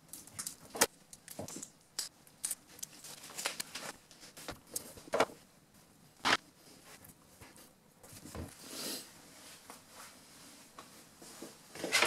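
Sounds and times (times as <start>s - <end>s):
tape clicks and rustles: 0.0s - 5.4s.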